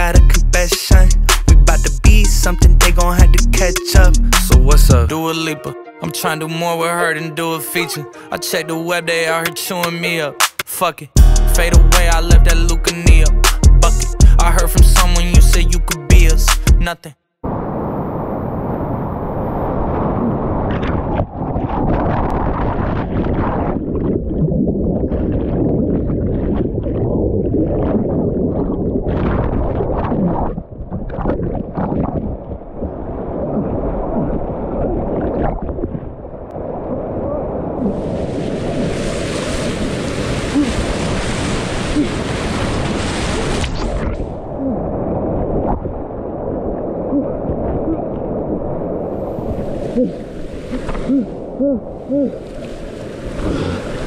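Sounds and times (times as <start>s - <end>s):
wind buffeting microphone: 17.4s - 54.0s
rushing whitewater: 37.8s - 43.8s.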